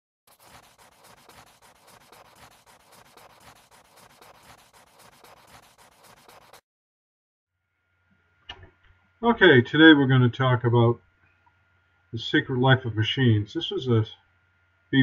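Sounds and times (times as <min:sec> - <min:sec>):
pencil scratching on paper: 0:00.3 - 0:06.6.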